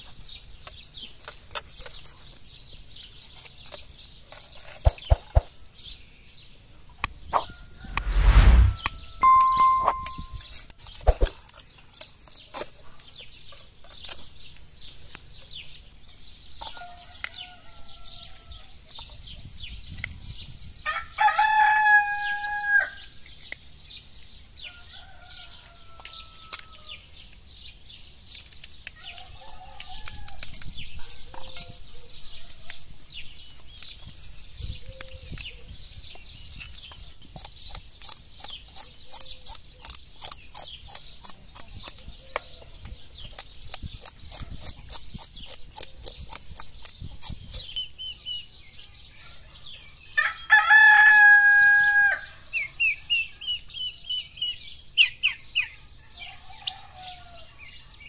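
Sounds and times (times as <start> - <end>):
rooster crowing: 50.2 - 52.3.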